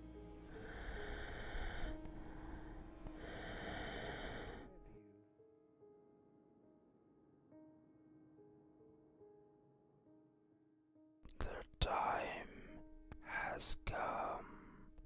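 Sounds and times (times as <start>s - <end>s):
soft piano music: 0.0s - 15.0s
heavy breaths: 0.4s - 5.1s.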